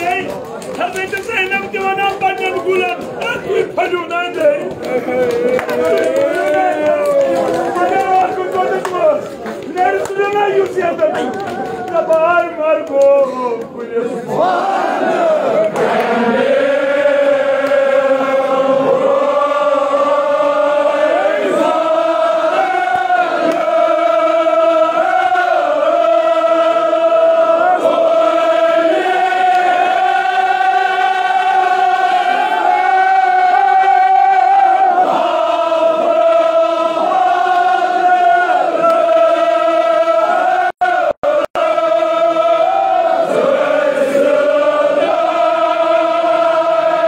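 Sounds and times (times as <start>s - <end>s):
men chanting in long notes: 13.8s - 47.0s.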